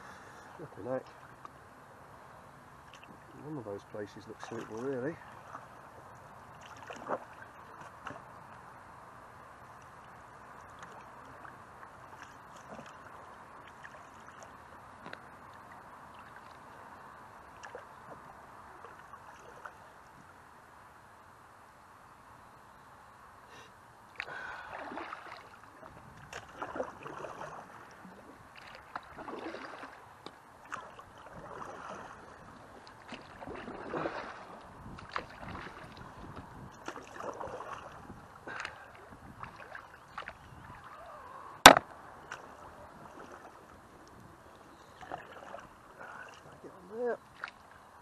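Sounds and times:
paddle strokes splashing water: 2.7 - 20.4, 24.1 - 48.0
knocks on canoe: 41.6 - 41.8.

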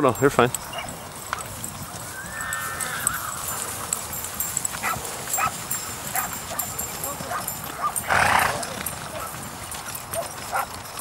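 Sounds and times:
hooves walking through grass: 0.0 - 11.0
jingling tack: 0.0 - 11.0
high whining animal call: 2.1 - 3.4.

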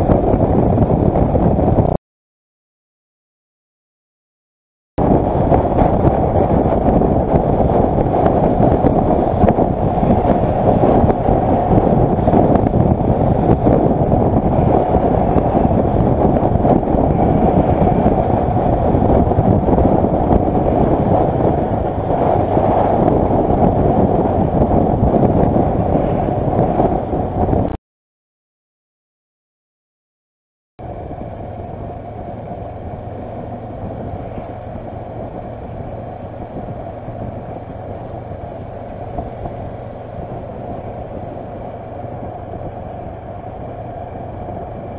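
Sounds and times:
motorcycle engine and road noise: 0.0 - 2.0, 5.0 - 27.8, 30.8 - 44.9
wind rush on microphone: 0.0 - 2.0, 5.0 - 27.8, 30.8 - 44.9.

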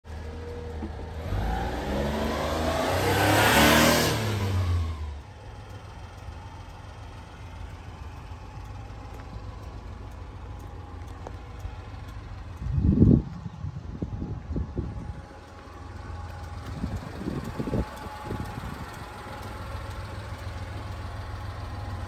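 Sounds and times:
low engine rumble: 0.0 - 22.0
vehicle engine revving: 0.1 - 6.2.

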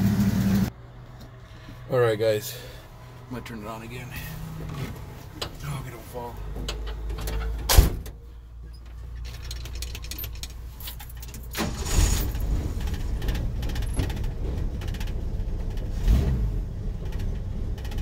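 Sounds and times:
truck engine starting and running: 0.0 - 18.0
keys jingling: 9.2 - 11.6.

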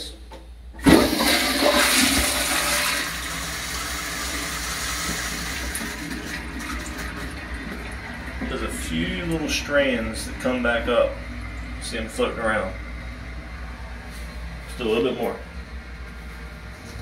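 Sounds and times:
toilet flushing: 0.7 - 13.3.

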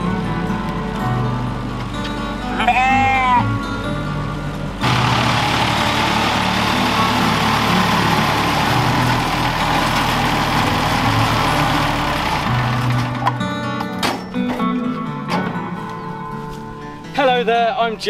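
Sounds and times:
tractor engine running: 0.0 - 14.0
background music: 0.0 - 18.0
sheep bleating: 2.4 - 3.7.

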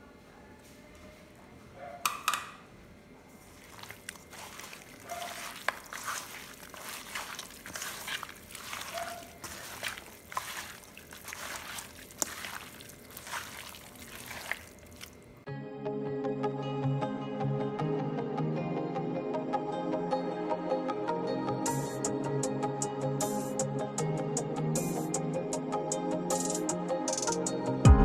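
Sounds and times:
wet squelching and slapping: 3.4 - 15.4.

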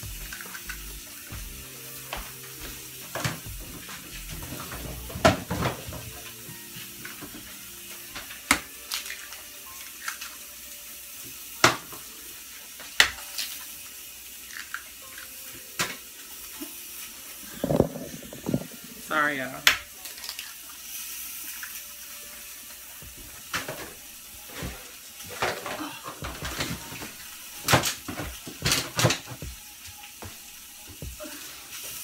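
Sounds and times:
steady hiss: 15.6 - 20.0.

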